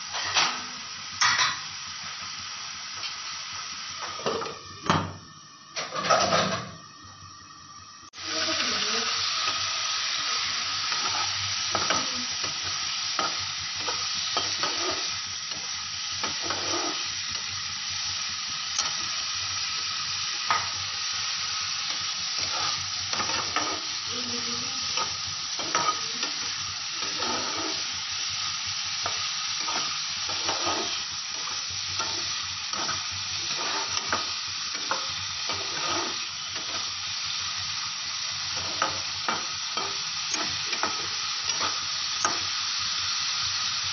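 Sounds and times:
prawns sizzling in frying pan: 0:00.0 - 0:43.9
spatula scraping a pan: 0:10.2 - 0:17.4, 0:21.8 - 0:37.1, 0:38.5 - 0:42.5.

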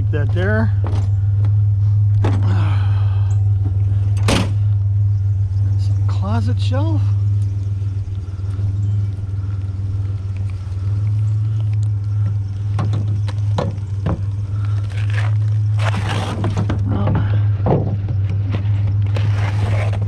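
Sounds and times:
truck engine idling: 0:00.0 - 0:20.0
scraping rustle: 0:08.2 - 0:20.0.

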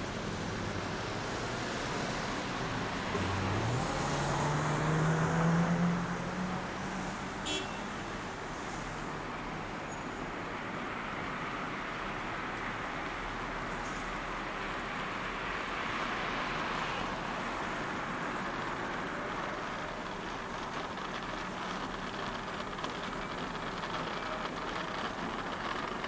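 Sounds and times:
road traffic noise: 0:00.0 - 0:26.0
vehicle engine passing: 0:00.2 - 0:07.4.

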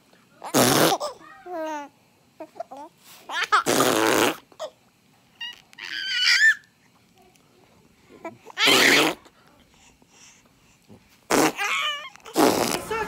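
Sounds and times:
raspberry blown: 0:03.7 - 0:04.4, 0:11.3 - 0:11.7, 0:12.4 - 0:13.0.

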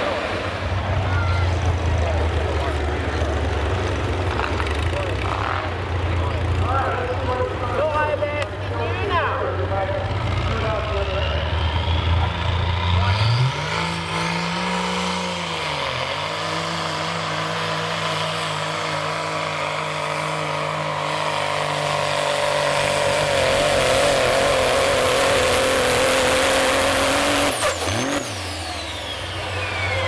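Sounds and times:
diesel engine running hard: 0:00.0 - 0:30.0
turbo whistle: 0:28.7 - 0:30.0.

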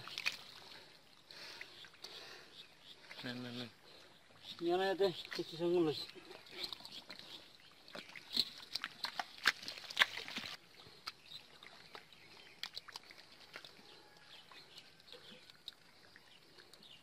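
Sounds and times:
hands squelching in mud: 0:07.9 - 0:13.8.

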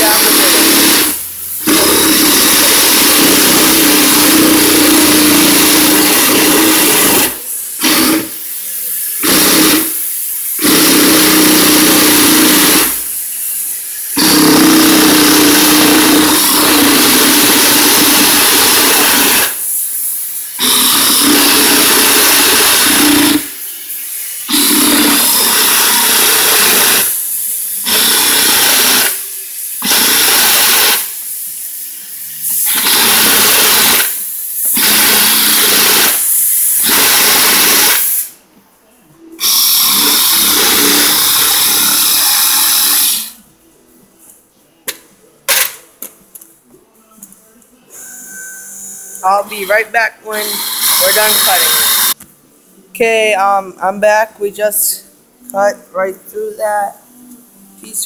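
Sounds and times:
reciprocating saw cutting plastic: 0:00.0 - 0:08.4, 0:09.2 - 0:10.0, 0:10.6 - 0:13.1, 0:14.2 - 0:19.6, 0:20.6 - 0:23.6.

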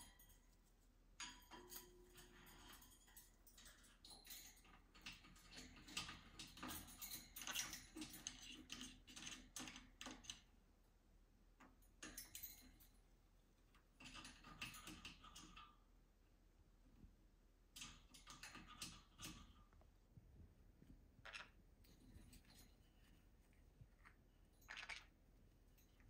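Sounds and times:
claws and beaks tapping metal bars: 0:00.0 - 0:10.6, 0:11.5 - 0:15.9, 0:17.7 - 0:19.8, 0:23.9 - 0:26.0
birds clicking and rustling in cage: 0:00.0 - 0:16.1, 0:17.6 - 0:19.9, 0:21.2 - 0:26.0.

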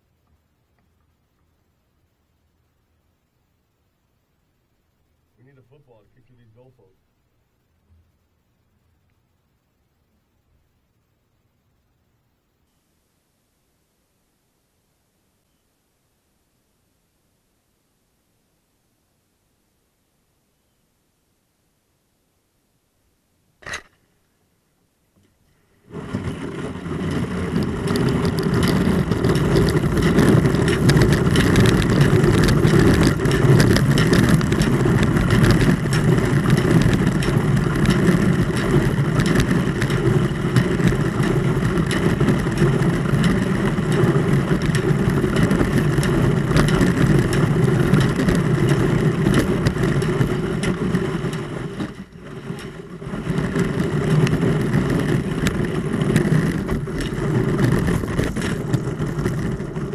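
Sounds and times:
kayak hull scraping through ice: 0:25.8 - 0:59.9.

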